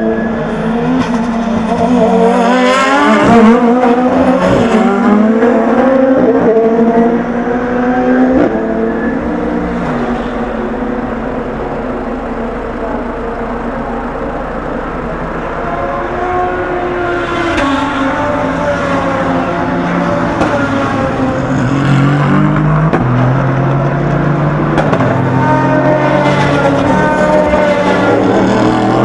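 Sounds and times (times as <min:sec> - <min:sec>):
race car engines revving: 0:00.0 - 0:29.0.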